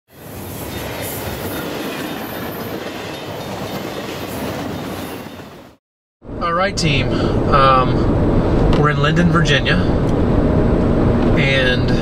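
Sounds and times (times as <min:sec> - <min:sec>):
train wheels on rails: 0:00.1 - 0:05.8.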